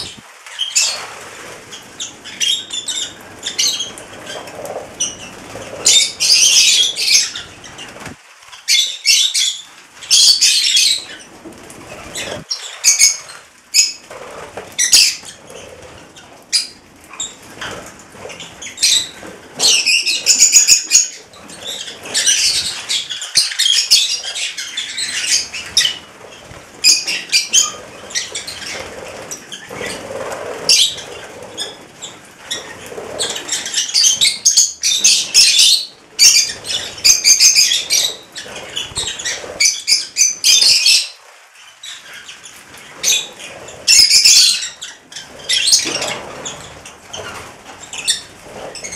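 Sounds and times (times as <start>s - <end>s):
bird wings flapping: 3.0s - 8.6s.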